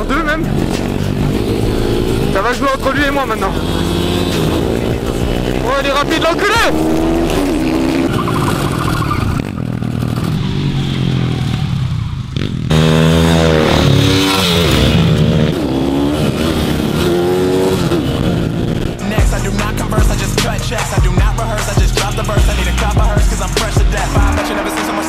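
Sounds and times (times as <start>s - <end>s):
motorcycle engines revving: 0.0s - 25.0s.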